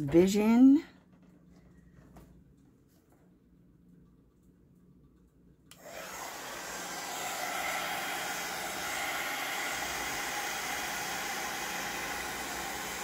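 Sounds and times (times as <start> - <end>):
heat gun blowing hot air: 5.8 - 13.0.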